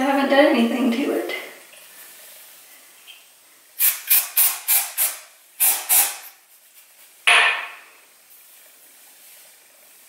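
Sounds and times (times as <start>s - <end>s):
aerosol spray hissing: 3.8s - 6.4s.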